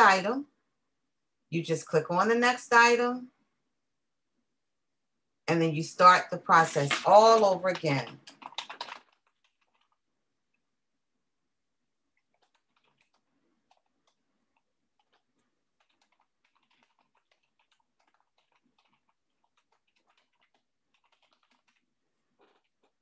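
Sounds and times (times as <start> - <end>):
typing on keyboard: 7.6 - 10.0, 12.2 - 14.2, 15.8 - 22.8.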